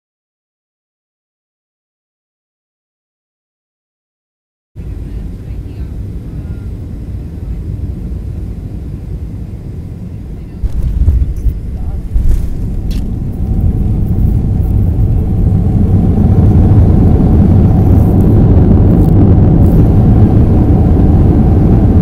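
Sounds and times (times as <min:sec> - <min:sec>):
airliner engines rumbling on takeoff: 0:04.8 - 0:22.0.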